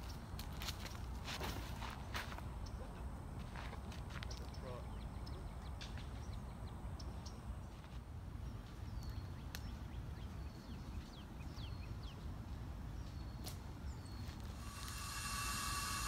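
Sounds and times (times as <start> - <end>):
small birds chirping: 4.2 - 16.0.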